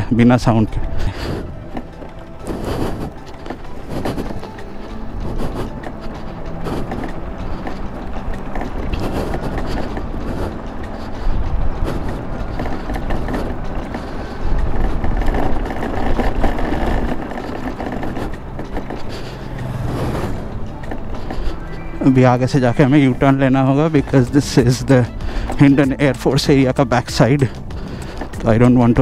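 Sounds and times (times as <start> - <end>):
wind buffeting the microphone: 0.0 - 29.0
wind rush and road noise: 0.0 - 29.0.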